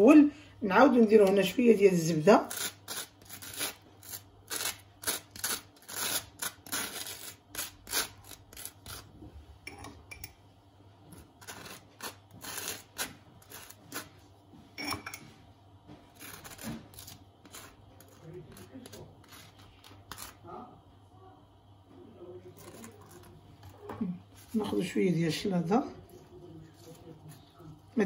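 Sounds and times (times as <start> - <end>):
knife scraping butter on toast: 2.4 - 9.1, 11.1 - 14.1, 16.1 - 20.4, 22.5 - 23.7.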